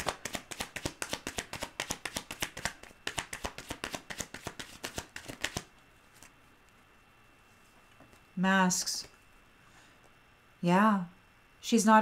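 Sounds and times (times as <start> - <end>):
cards being shuffled: 0.0 - 6.8.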